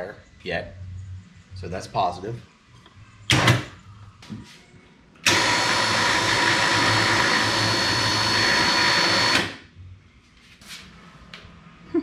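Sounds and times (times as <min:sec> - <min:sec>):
electric winch motor whine: 0:05.2 - 0:09.7.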